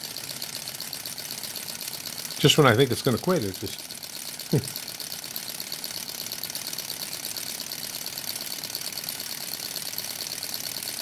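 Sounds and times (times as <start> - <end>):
small engine mechanical clatter: 0.0 - 11.0.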